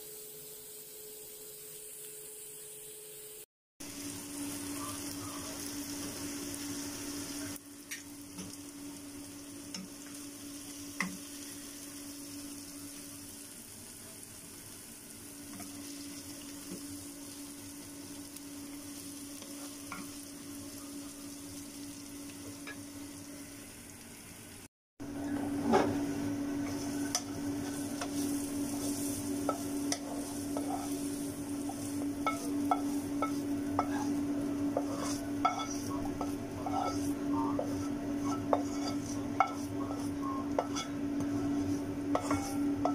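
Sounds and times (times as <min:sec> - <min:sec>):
food sizzling in a frying pan: 0:00.0 - 0:42.9
steady hum: 0:25.0 - 0:42.9
spatula scraping a pan: 0:26.6 - 0:42.9.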